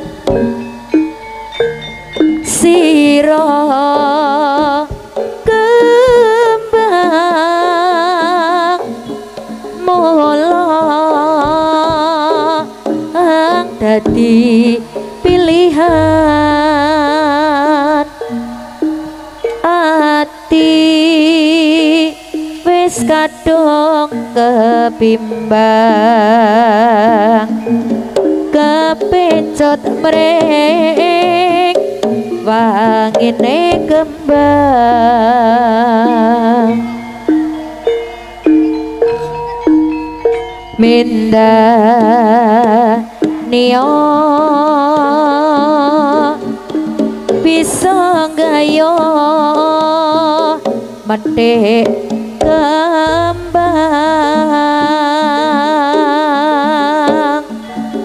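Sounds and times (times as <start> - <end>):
gamelan music: 0.0 - 58.0
hand drums striking: 0.0 - 58.0
melody with wide vibrato: 13.6 - 29.6, 33.6 - 43.6, 52.0 - 57.0
steady low tone: 14.8 - 22.6, 33.8 - 41.4, 52.4 - 56.1
deep gong stroke: 15.0 - 20.6, 34.0 - 40.8, 52.9 - 56.1
low drone: 15.3 - 20.5, 34.1 - 39.6, 52.9 - 55.8.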